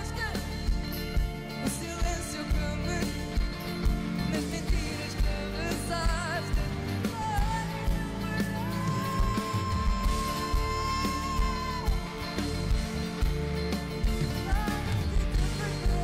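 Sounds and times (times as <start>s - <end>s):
keyboard and guitars: 0.0s - 16.0s
drum beat: 7.3s - 16.0s.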